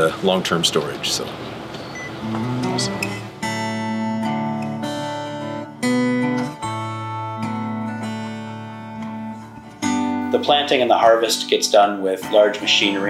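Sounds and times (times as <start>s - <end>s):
acoustic guitar chords strummed: 1.9s - 11.5s.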